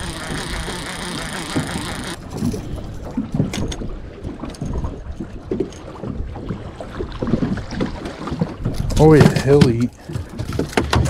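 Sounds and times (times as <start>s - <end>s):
fishing reel clicks and knocks: 0.0s - 2.2s
water slapping against metal hull: 0.0s - 11.0s.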